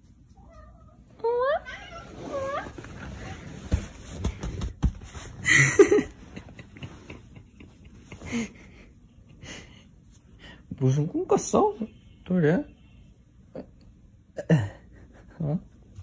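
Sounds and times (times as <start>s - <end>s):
soft thumps and bedding rustling: 2.0s - 7.4s.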